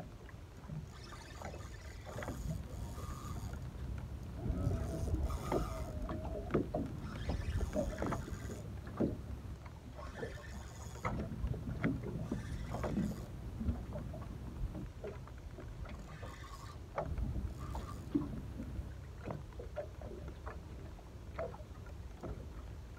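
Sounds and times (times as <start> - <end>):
water slapping against boat hull: 0.6 - 22.6
steady low rumble: 3.7 - 7.0.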